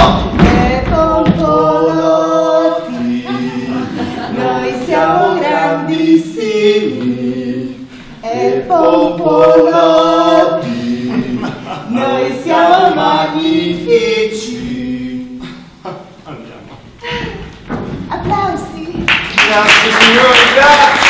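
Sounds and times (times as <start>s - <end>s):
voices singing unaccompanied: 0.0s - 16.2s.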